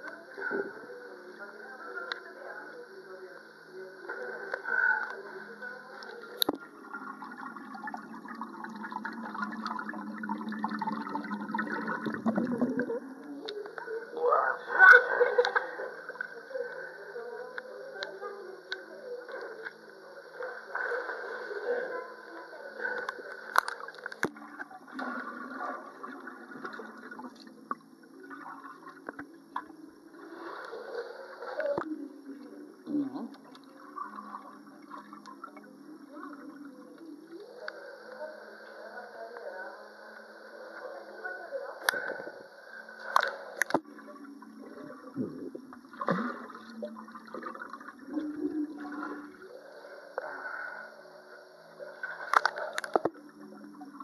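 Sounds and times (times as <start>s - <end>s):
water sloshing and gurgling: 6.0s - 14.0s, 19.3s - 37.2s, 41.9s - 54.0s
water splashing: 44.7s - 49.6s.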